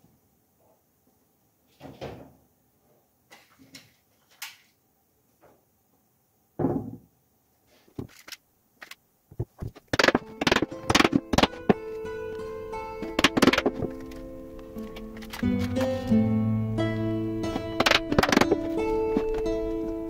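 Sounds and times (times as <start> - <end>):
straps scraping and clicking on board: 7.8 - 11.8.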